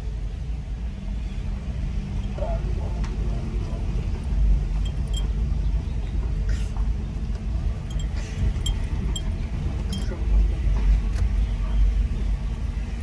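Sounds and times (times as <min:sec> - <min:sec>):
car rumbling inside cabin: 0:01.2 - 0:13.0.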